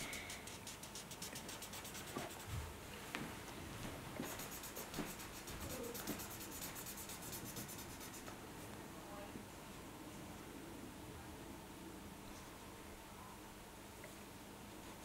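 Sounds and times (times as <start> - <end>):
marker scribbling on paper: 0.0 - 2.6, 4.2 - 8.3.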